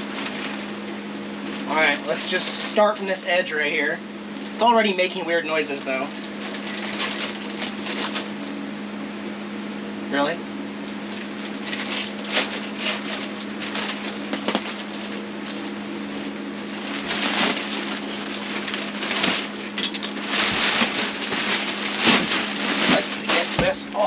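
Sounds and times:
steady low hum: 0.0s - 24.0s
plastic wrap crinkling: 6.1s - 8.4s, 10.9s - 24.0s.

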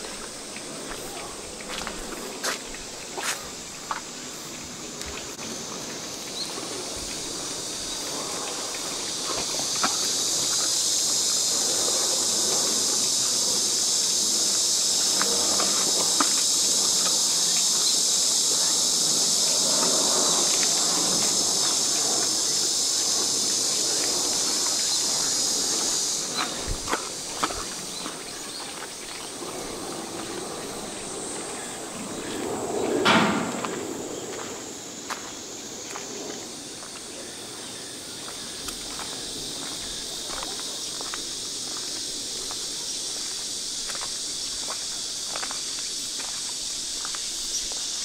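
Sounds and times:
high-pitched insect chorus: 0.0s - 48.0s.

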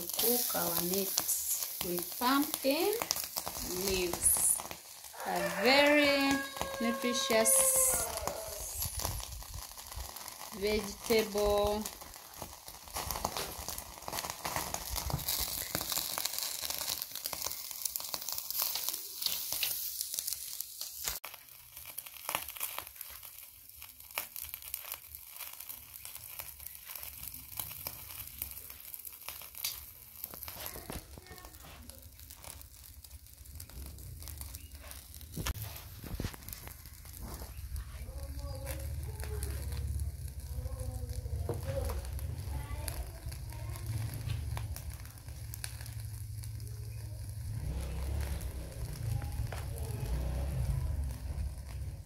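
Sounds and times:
leaves rustling and tearing: 0.0s - 52.0s.

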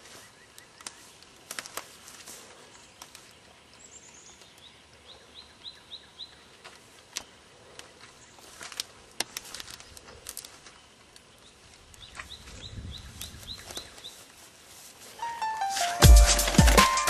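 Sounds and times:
footsteps in dry grass: 0.0s - 3.8s, 6.6s - 17.0s
small bird chirping: 10.7s - 14.3s
wind rumble on microphone: 12.0s - 13.7s
music: 15.2s - 17.0s.

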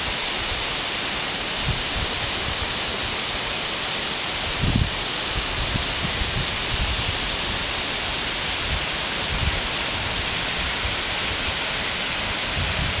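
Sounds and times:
waterfall rushing onto rocks: 0.0s - 13.0s.

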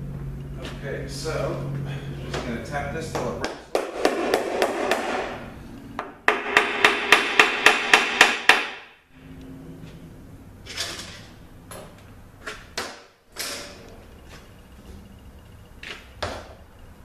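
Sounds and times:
hammer tapping metal plate: 6.0s - 8.8s.

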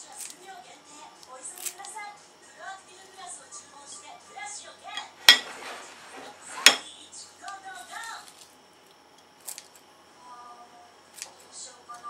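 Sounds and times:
scissors clinking on ceramic plate: 5.0s - 5.5s, 6.6s - 6.8s.

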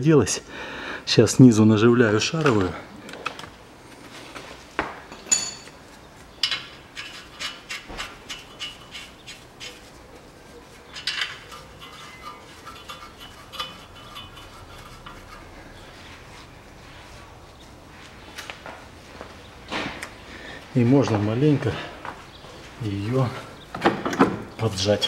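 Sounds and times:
metal tools clinking and knocking: 5.1s - 5.8s, 6.4s - 7.6s, 10.9s - 15.2s.

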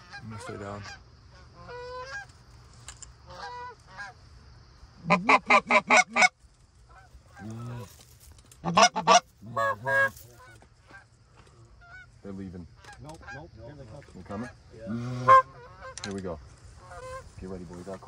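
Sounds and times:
goose honking: 0.0s - 2.3s, 3.2s - 4.2s, 5.0s - 8.0s, 8.6s - 11.1s, 11.8s - 13.5s, 14.2s - 18.0s.

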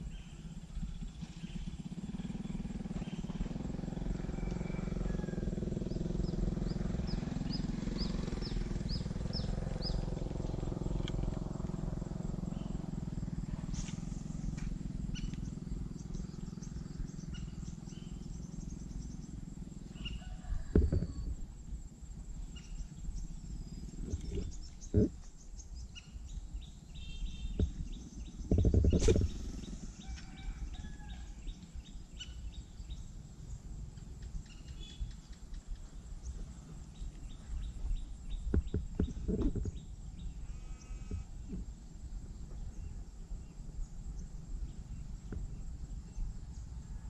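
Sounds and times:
birds chirping: 0.0s - 3.7s, 5.8s - 21.3s, 22.4s - 46.8s
high insect drone: 0.0s - 47.0s
dull thumps: 20.7s - 21.4s, 38.5s - 39.8s.

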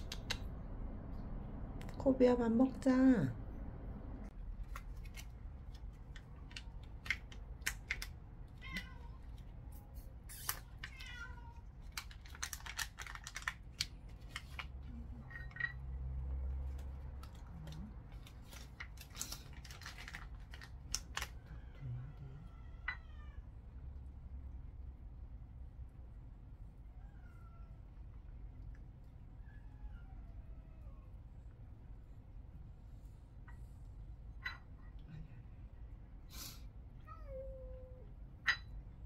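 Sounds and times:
cat eating with clicks and smacks: 4.3s - 21.8s
cat meowing: 8.6s - 9.3s, 10.4s - 11.7s, 21.3s - 23.5s, 37.0s - 38.1s.

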